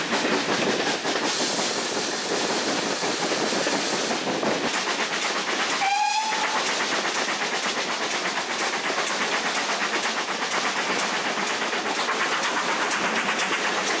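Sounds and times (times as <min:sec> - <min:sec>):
train coach rattling on track: 0:00.0 - 0:14.0.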